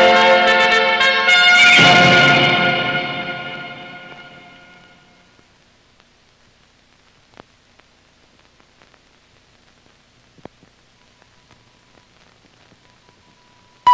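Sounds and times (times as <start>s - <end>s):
film soundtrack hiss: 0.0s - 13.9s
faint steady tone: 2.8s - 13.9s
scattered clicks: 7.0s - 9.0s.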